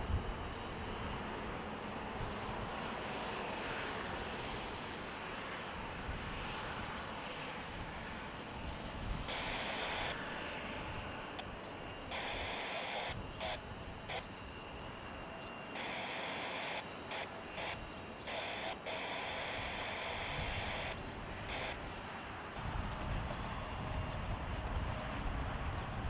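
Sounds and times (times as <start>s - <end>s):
jet engines rumbling: 0.0s - 26.0s.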